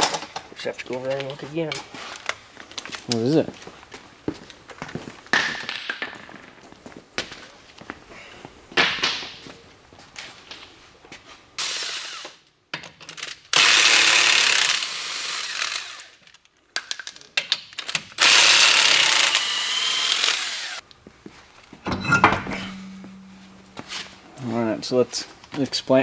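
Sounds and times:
impact wrench on lug nuts: 21.9s - 24.3s.

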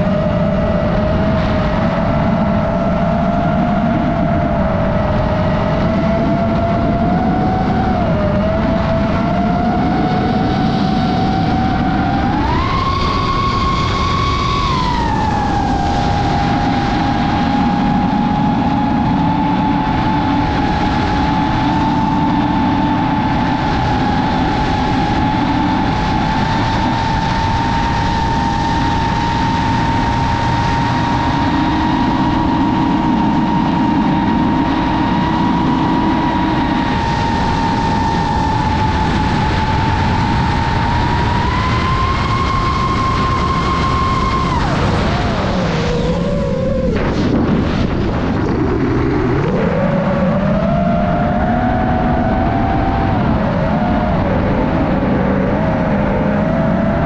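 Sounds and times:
drone propellers whining: 0.0s - 57.0s
rushing noise: 0.0s - 57.0s.

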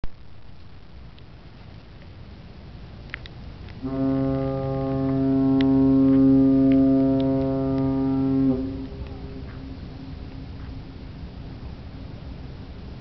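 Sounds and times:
ship's horn blast: 3.8s - 11.4s.

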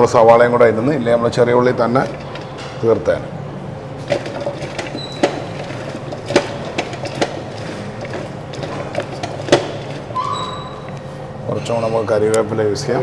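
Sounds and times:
steady low hum: 0.0s - 13.0s
kitchen knocks and clicks: 4.1s - 10.1s.

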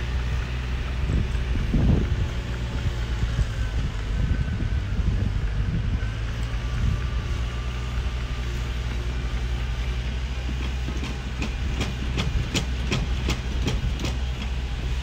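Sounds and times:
diesel engine droning: 0.0s - 15.0s
steel tracks clanking: 7.9s - 15.0s.

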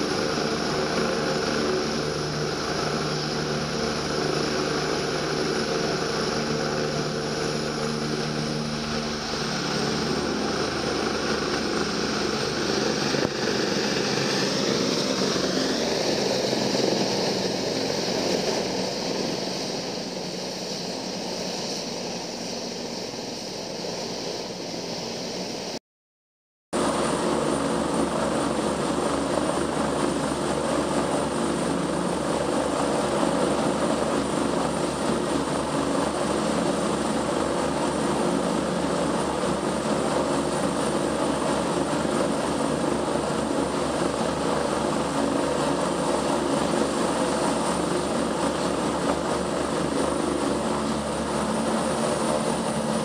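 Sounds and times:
helicopter rotor and turbine: 0.0s - 25.8s, 26.8s - 53.0s.

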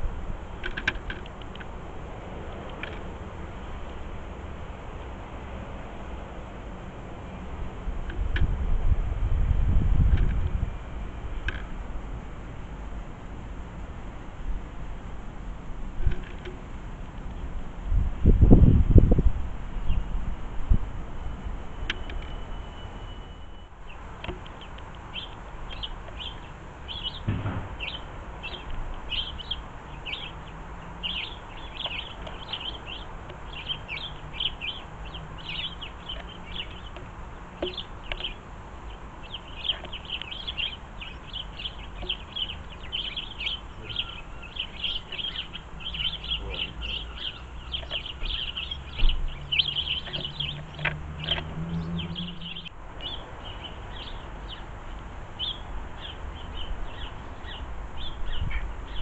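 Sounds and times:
birds chirping: 16.0s - 59.0s.

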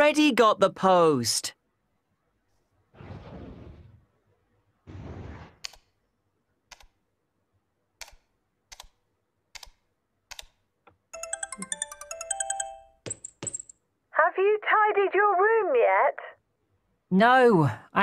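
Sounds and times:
sharp clicks: 6.7s - 7.0s, 8.0s - 10.6s
chiming jingle: 11.2s - 13.7s.

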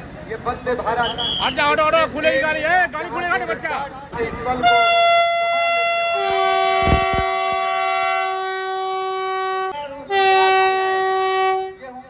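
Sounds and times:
electric train horn: 4.6s - 12.0s.

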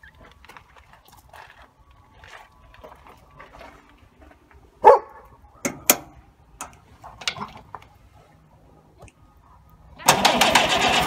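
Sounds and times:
dog barking: 4.8s - 5.3s.

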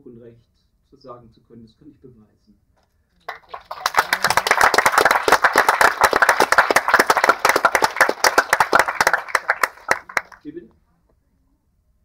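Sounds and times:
audience applauding: 3.3s - 10.4s.

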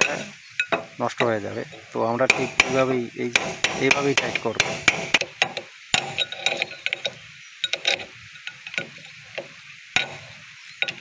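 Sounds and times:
chisel tapping on metal nut: 0.0s - 10.2s.

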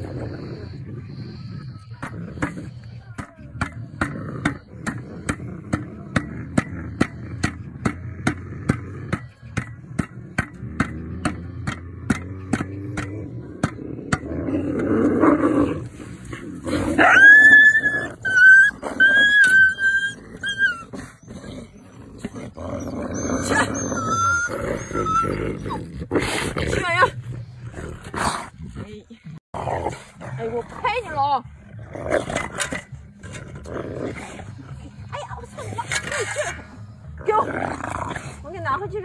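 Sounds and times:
wolves whining: 0.0s - 28.6s
wolves growling: 0.0s - 39.0s.

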